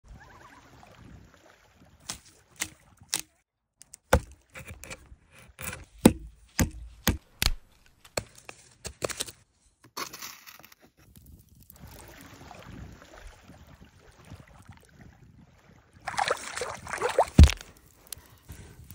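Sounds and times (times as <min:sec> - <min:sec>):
wooden stick cracking and snapping: 0:05.6 - 0:09.4, 0:17.2 - 0:18.9
hands rustling fish on wet gravel: 0:16.1 - 0:18.9.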